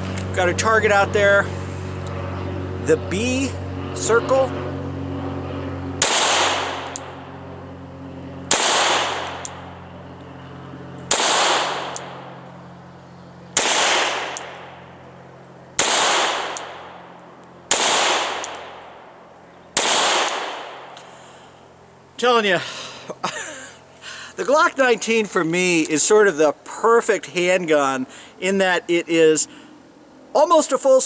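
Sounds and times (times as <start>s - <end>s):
pistol shots echoing: 6.0s - 7.2s, 8.5s - 9.6s, 11.1s - 12.2s, 13.5s - 14.8s, 15.8s - 17.0s, 17.7s - 19.0s, 19.8s - 20.9s.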